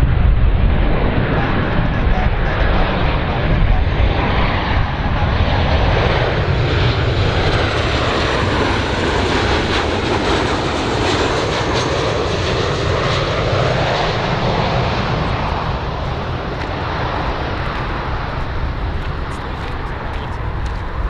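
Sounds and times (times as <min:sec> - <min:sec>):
jet engines rushing with whine: 0:00.0 - 0:21.0.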